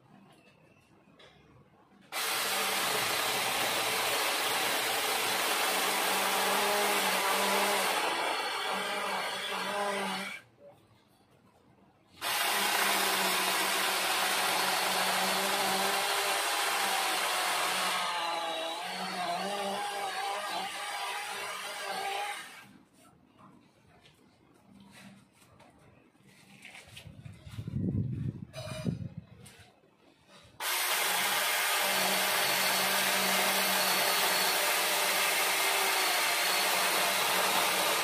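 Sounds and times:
cordless saw cutting wood: 0:02.1 - 0:10.4, 0:12.2 - 0:22.7, 0:30.6 - 0:38.0.

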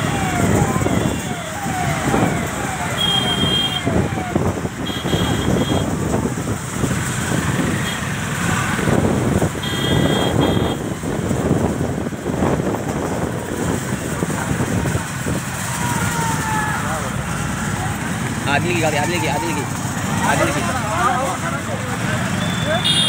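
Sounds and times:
vehicles rushing past: 0:00.0 - 0:23.0
wind on microphone: 0:08.4 - 0:15.5.

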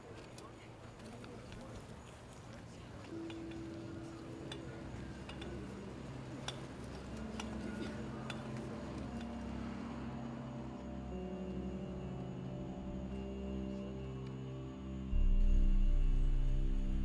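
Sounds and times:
light clicks and clinks: 0:00.0 - 0:09.6
ambient film score music: 0:00.1 - 0:17.0.

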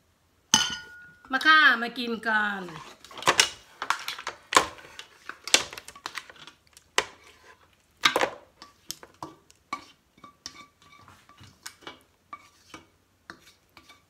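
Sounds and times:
metal pot ringing: 0:00.6 - 0:01.3
spatula scraping a metal pot: 0:02.6 - 0:03.2, 0:03.8 - 0:07.7, 0:08.6 - 0:14.0.

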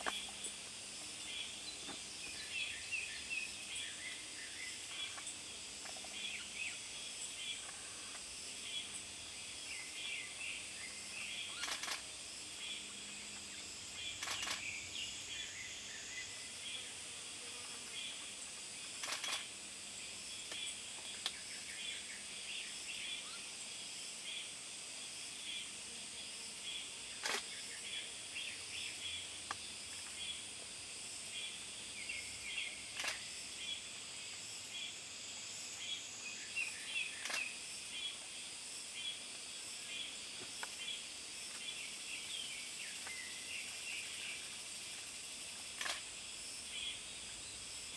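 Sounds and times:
high-pitched insect buzz: 0:00.0 - 0:47.9
faint bird chirps: 0:36.3 - 0:38.2.

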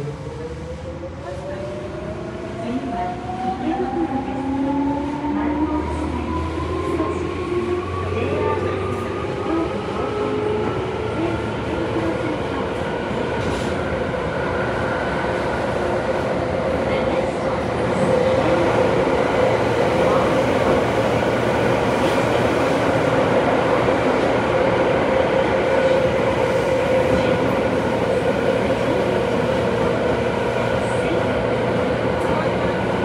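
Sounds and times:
steady train hum: 0:00.0 - 0:33.0
train wheels rumbling on rail: 0:06.7 - 0:33.0.

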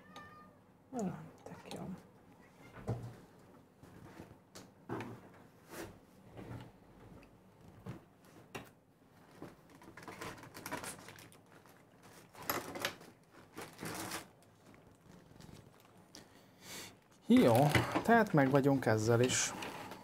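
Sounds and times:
packaging rustling: 0:09.2 - 0:16.4, 0:17.0 - 0:18.7.

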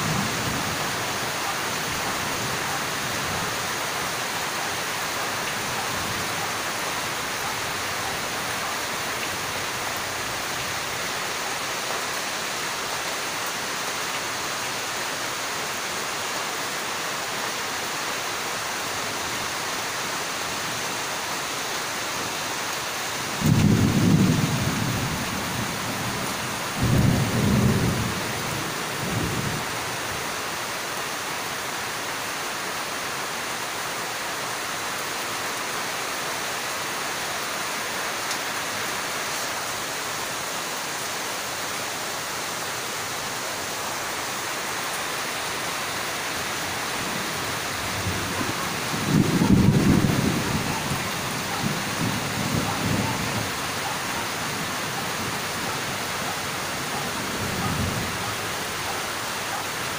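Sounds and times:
heavy rain falling: 0:00.0 - 0:59.9
low rolls of thunder: 0:23.3 - 0:26.2, 0:47.9 - 0:53.6.

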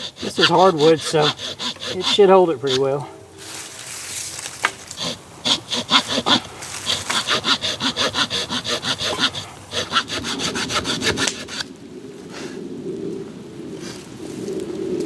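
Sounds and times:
hand saw cutting wood: 0:00.0 - 0:03.1, 0:04.6 - 0:11.7.

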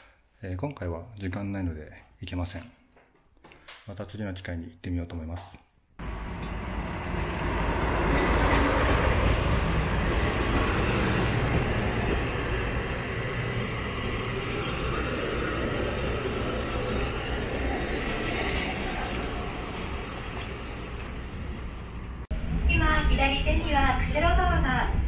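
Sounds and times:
locomotive engine humming: 0:06.0 - 0:22.3
rolling carriages rumbling: 0:06.0 - 0:22.6.

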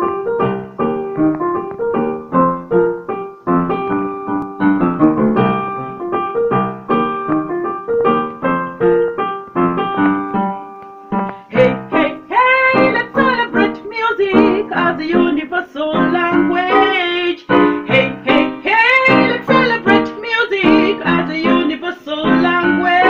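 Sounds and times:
piano chords: 0:00.0 - 0:23.0.

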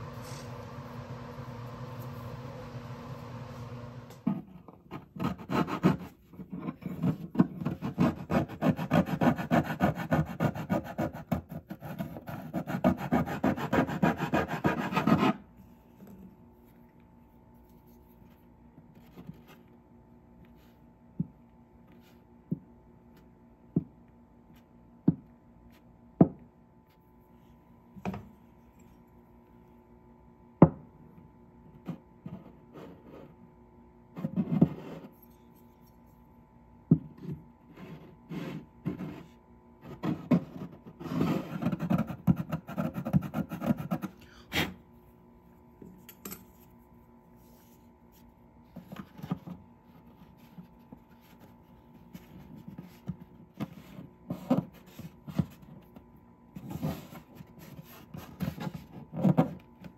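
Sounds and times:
faint steady hum: 0:00.0 - 0:59.9
sanding block rasping on wood: 0:12.5 - 0:15.4.

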